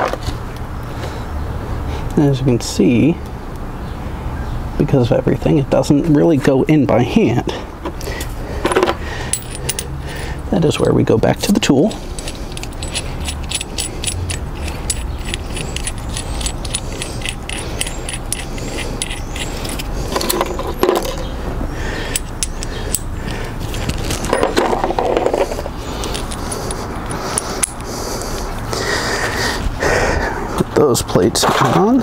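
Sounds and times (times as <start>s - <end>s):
small metal parts clinking: 8.2s - 28.4s
handling rustles: 8.7s - 10.4s, 11.5s - 21.3s, 22.1s - 28.6s.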